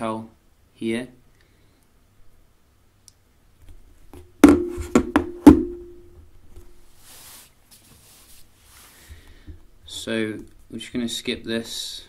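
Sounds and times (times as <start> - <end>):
knocks on wooden tabletop: 4.4 - 5.8.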